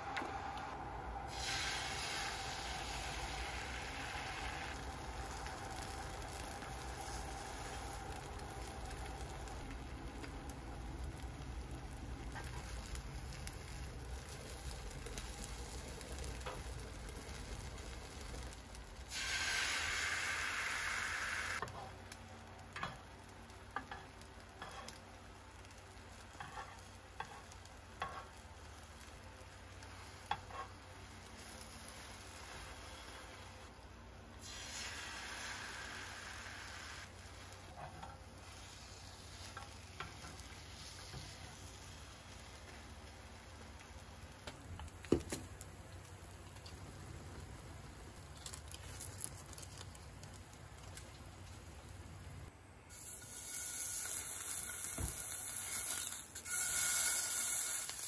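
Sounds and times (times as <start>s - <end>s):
louder rushing hiss: 1.2s - 4.8s, 19.1s - 21.6s
food sizzling in a frying pan: 1.2s - 58.0s.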